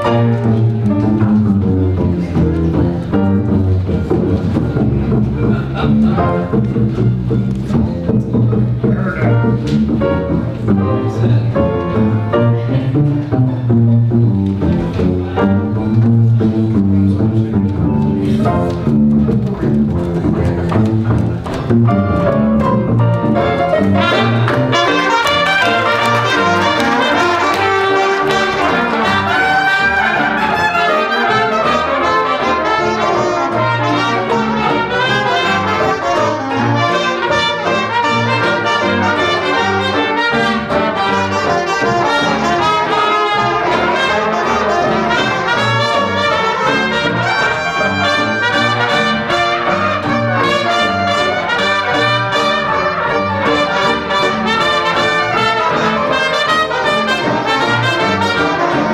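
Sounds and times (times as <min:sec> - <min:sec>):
dixieland jazz band playing: 0:00.0 - 0:58.9
cornet leading: 0:17.5 - 0:58.9.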